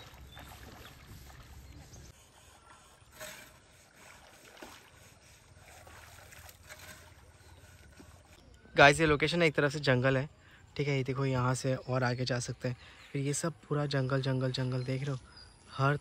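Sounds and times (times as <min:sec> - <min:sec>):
soft water splash: 0:00.0 - 0:02.1, 0:03.2 - 0:08.2
shallow river water sloshing: 0:00.0 - 0:10.6.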